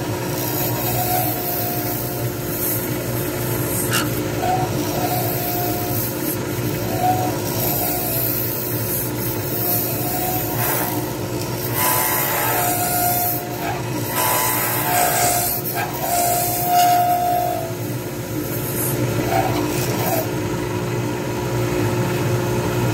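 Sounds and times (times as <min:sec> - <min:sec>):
turning tool scraping resin: 0:00.0 - 0:17.8, 0:18.4 - 0:20.4
lathe motor hum: 0:00.0 - 0:21.6.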